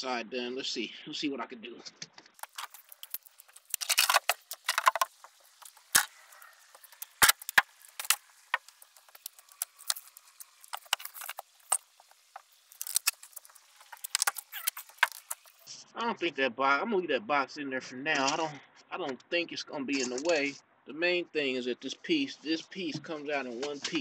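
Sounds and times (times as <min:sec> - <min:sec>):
rustling: 0:02.3 - 0:15.8.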